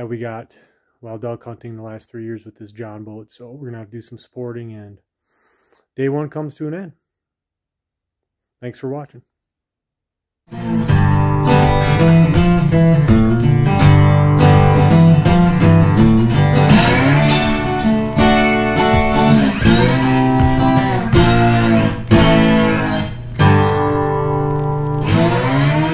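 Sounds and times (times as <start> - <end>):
guitar music: 10.5 - 25.9.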